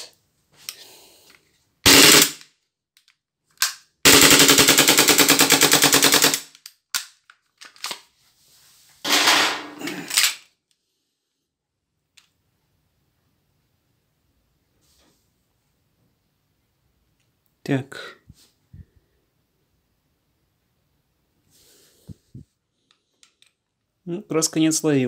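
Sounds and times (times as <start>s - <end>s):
airsoft pistol firing bursts: 1.9s - 2.4s, 4.0s - 6.5s
clicks and handling noises: 2.9s - 3.9s, 6.5s - 8.2s, 9.1s - 10.8s, 22.8s - 24.0s.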